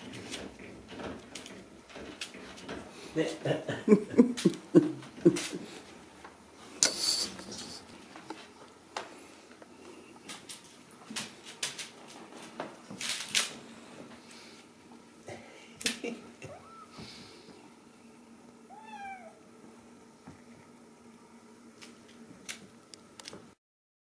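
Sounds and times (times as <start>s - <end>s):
kittens scuffling and rustling: 5.0s - 15.1s.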